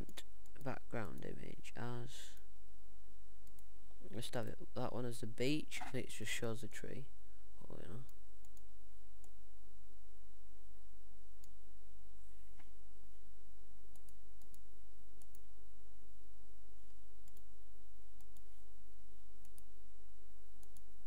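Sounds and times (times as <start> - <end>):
low electrical hum: 0.0 - 21.0
computer mouse clicking: 13.9 - 14.6, 17.2 - 17.5, 18.2 - 18.5, 19.4 - 19.7, 20.6 - 20.9.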